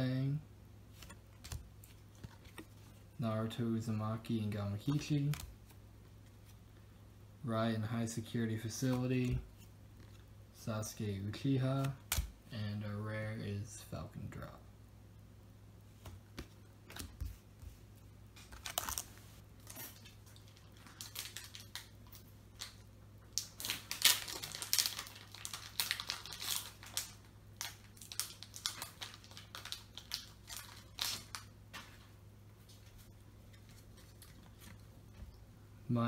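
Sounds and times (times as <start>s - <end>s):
faint steady hum: 0.0s - 36.0s
foil wrapper crinkling and tearing: 18.5s - 31.5s.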